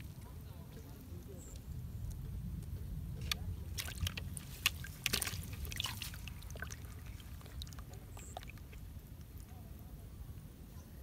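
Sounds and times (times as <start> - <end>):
fish splashing in plastic bucket: 3.2 - 8.9.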